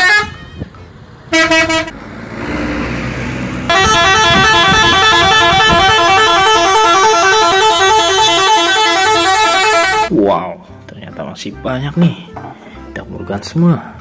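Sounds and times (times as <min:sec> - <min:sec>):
multi-tone musical air horn: 0:00.0 - 0:00.7, 0:01.3 - 0:01.9, 0:03.7 - 0:10.1
bus engine: 0:00.0 - 0:10.1.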